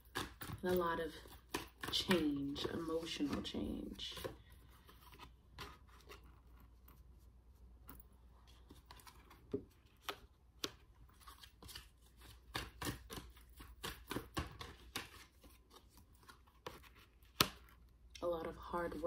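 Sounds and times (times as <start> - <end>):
cards tapping on cards: 0.0 - 4.5, 9.0 - 15.6, 16.6 - 17.8.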